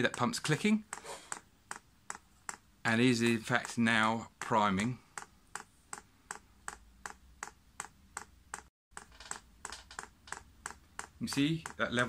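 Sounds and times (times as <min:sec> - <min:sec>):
fuel pump clicking evenly: 0:04.4 - 0:12.0.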